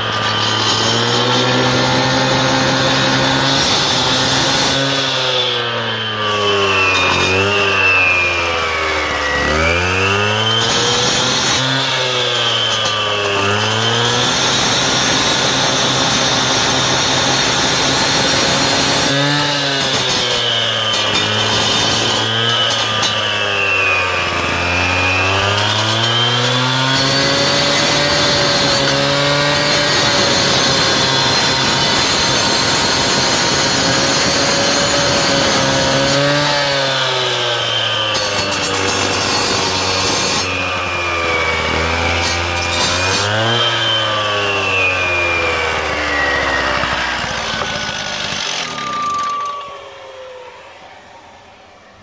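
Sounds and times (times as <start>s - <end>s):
cut-off saw cutting stone: 0.0s - 50.8s.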